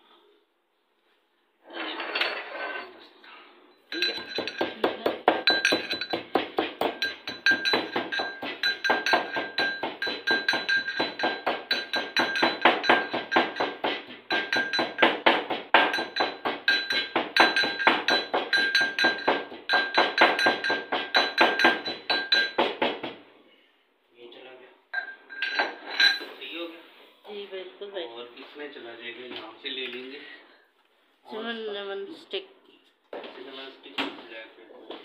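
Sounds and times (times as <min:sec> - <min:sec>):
metal pestle pounding in mortar: 0:03.9 - 0:23.2.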